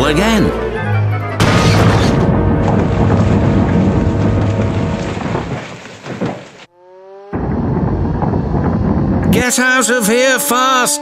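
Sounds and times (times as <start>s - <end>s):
music: 0.0s - 5.2s
loud rumbling crash: 1.4s - 6.7s, 7.4s - 9.8s.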